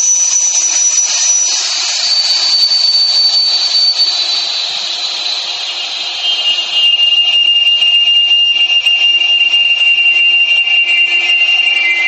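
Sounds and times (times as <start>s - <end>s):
liquid nitrogen hissing with whistle: 0.0s - 5.4s.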